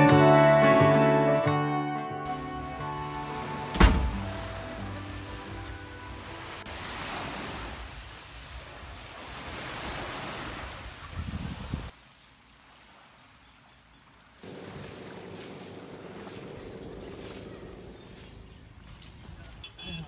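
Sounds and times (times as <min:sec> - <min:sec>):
small waves lapping on shore: 0:02.3 - 0:20.0
wind gusting on microphone: 0:09.9 - 0:11.9.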